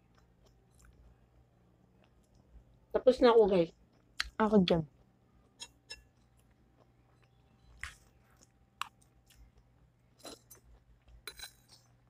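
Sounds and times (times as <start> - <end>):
person chewing: 0.0 - 2.5, 5.0 - 12.0.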